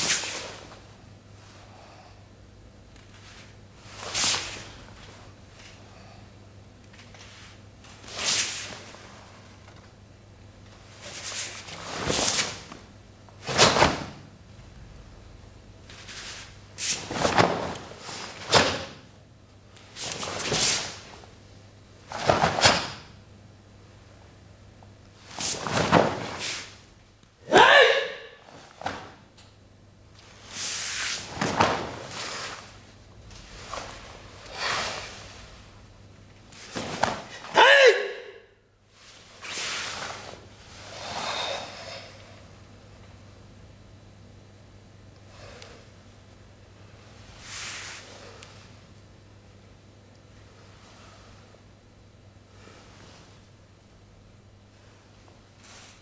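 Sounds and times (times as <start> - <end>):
whooshing of martial arts uniform: 15.9 - 19.0, 19.8 - 21.3, 25.3 - 26.8, 30.3 - 35.8, 36.5 - 37.4
forceful hissing breathing: 33.7 - 35.7, 39.4 - 42.5.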